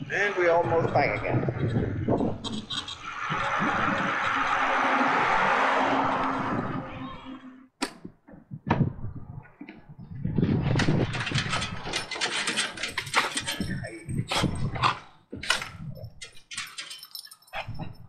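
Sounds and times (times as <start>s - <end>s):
dogs' claws on metal steps: 10.7s - 18.0s.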